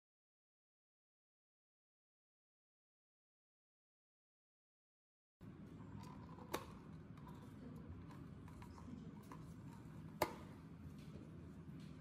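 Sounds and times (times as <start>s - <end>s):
faint room noise: 5.4s - 12.0s.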